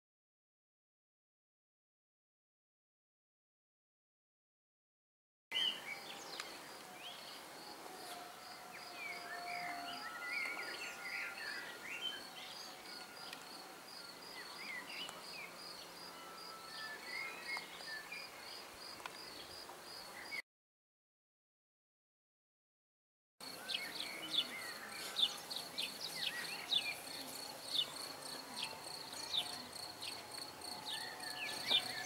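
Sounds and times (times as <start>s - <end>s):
birds twittering and whistling: 5.6s - 18.6s, 23.4s - 32.0s.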